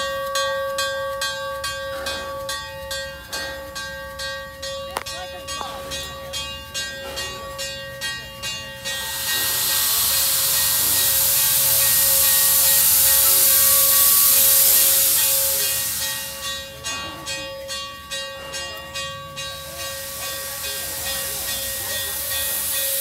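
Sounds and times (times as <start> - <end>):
steady ringing tones: 0.0 - 23.0
steam locomotive hissing: 0.0 - 23.0
quick rhythmic pulsing: 5.4 - 17.0.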